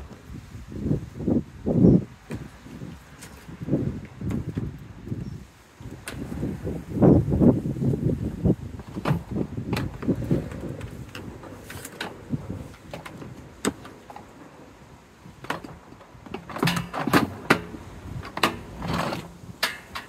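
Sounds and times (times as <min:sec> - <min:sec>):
plastic parts clicking and scraping: 0:08.8 - 0:20.0.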